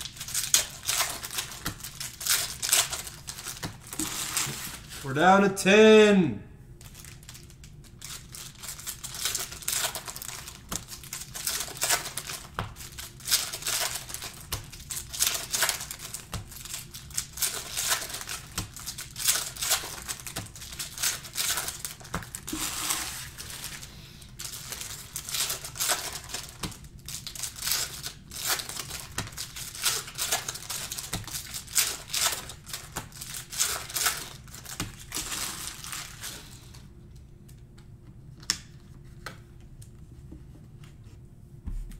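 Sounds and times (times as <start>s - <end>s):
plastic wrappers crinkling: 0.0s - 5.1s, 6.8s - 36.8s.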